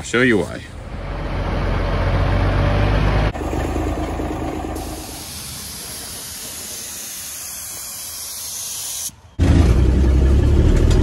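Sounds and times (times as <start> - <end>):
truck engine running: 0.7 - 6.7
paint spray gun hissing: 4.3 - 9.2.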